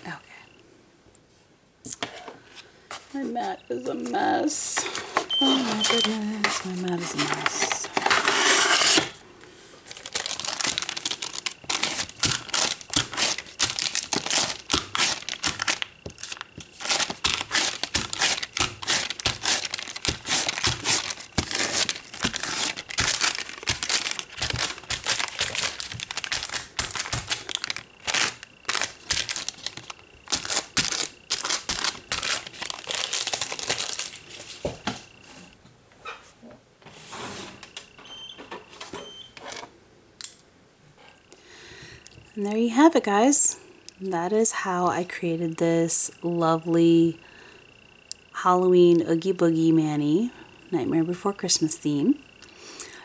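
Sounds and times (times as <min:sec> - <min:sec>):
crinkly material being crumpled: 0:09.8 - 0:34.8.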